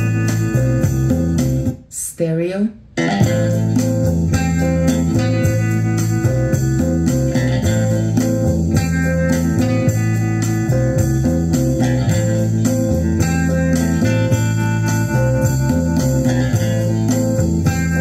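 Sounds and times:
guitar music with bass line: 0.0s - 1.8s, 3.0s - 18.0s.

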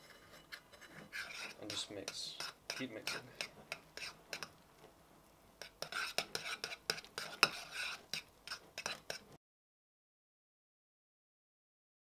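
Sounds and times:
spoon scraping ceramic bowl: 0.0s - 4.6s, 5.6s - 9.4s.

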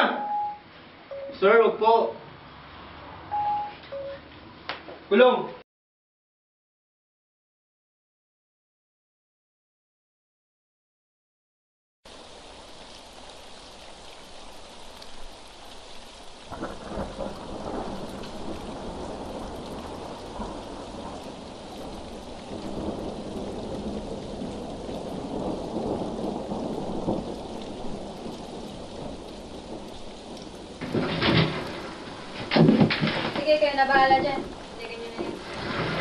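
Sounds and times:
steady rain: 12.1s - 36.0s
thunder: 16.5s - 36.0s.

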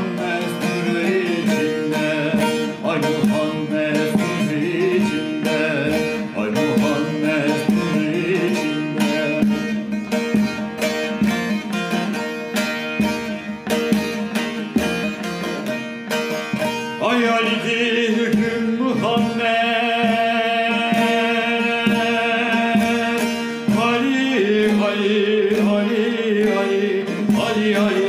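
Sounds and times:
man singing: 0.0s - 11.0s, 16.7s - 28.0s
long-necked lute strummed: 0.0s - 28.0s.

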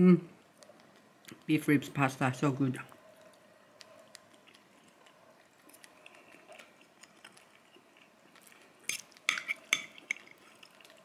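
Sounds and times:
bird chewing: 2.9s - 11.0s.

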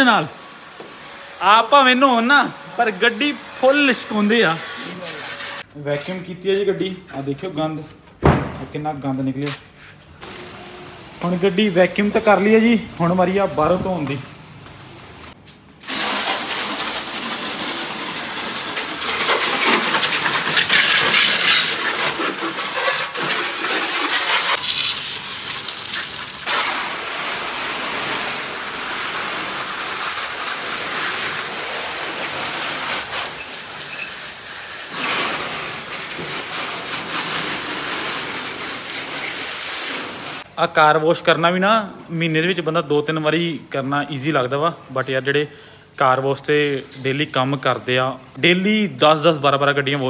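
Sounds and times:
hose spraying water on car: 3.0s - 5.7s, 15.8s - 40.5s.

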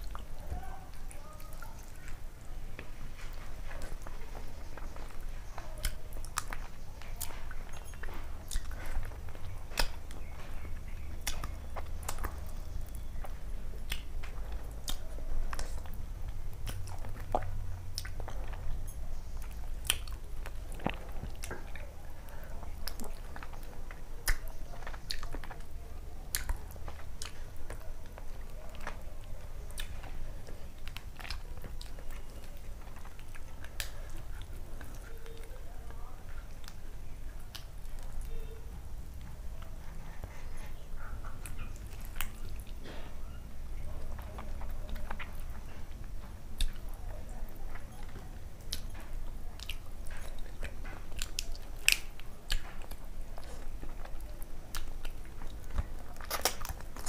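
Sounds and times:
close chewing food: 0.0s - 57.0s
wet mouth clicks and smacks: 5.8s - 12.4s, 24.2s - 25.6s, 48.6s - 57.0s.

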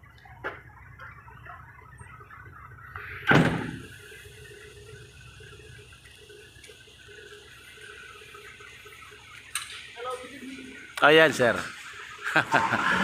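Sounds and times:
faint steady hum: 0.0s - 13.0s
cab door slam: 3.3s - 3.8s.

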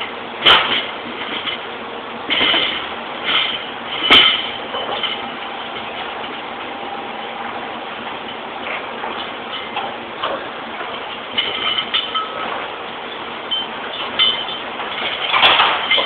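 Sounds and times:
factory machinery noise: 0.0s - 16.0s
metal parts clanking: 2.3s - 6.4s, 11.2s - 12.7s, 13.5s - 16.0s.

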